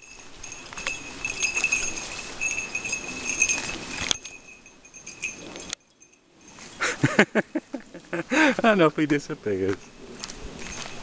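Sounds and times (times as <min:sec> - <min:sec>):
footsteps through long grass: 0:00.0 - 0:05.7, 0:09.0 - 0:11.0
small bell jingling: 0:00.0 - 0:07.4, 0:09.5 - 0:11.0.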